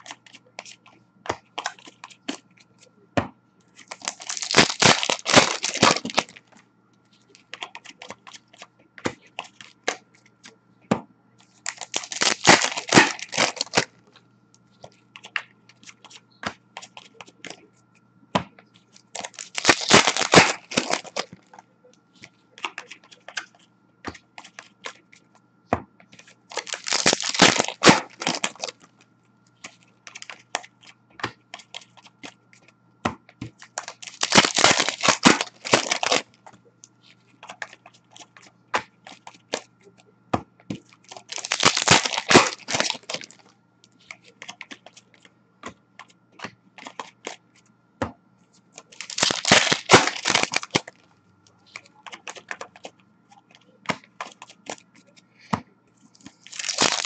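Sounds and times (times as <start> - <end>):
cards being handled: 0.0 - 3.0, 3.6 - 10.6, 11.4 - 18.0, 18.7 - 21.6, 22.2 - 25.4, 26.0 - 32.8, 33.4 - 47.7, 48.6 - 57.0
card pack wrapper ripping: 3.8 - 6.4, 11.7 - 13.9, 19.1 - 21.4, 26.5 - 28.8, 33.8 - 36.3, 41.1 - 43.4, 48.8 - 50.9, 56.4 - 57.0.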